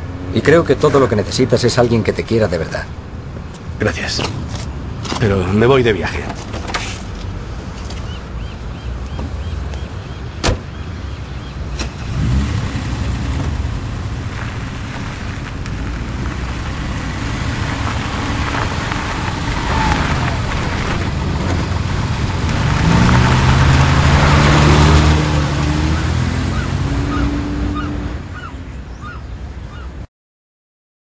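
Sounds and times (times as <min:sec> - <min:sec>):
traffic noise: 0:00.0 - 0:30.1
car engine revving: 0:11.7 - 0:28.5.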